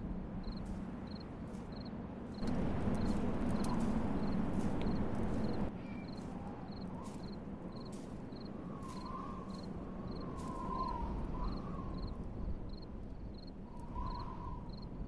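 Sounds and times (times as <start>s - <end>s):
crickets chirping: 0.4s - 15.0s
low rumble: 2.4s - 5.7s.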